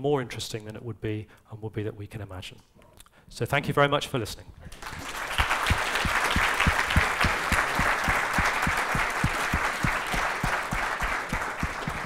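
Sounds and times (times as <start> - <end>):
audience applauding: 4.7 - 12.0
rhythmic nearer claps: 4.7 - 12.0.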